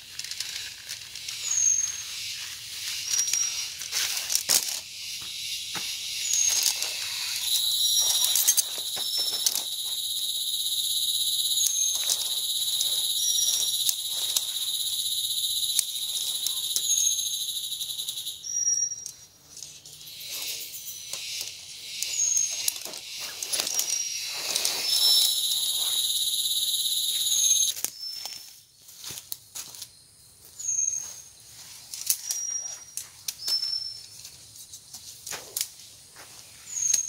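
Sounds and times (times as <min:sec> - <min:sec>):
insect high-pitched buzz: 0:00.0 - 0:34.5
short high chirps: 0:07.2 - 0:19.0, 0:24.0 - 0:27.7.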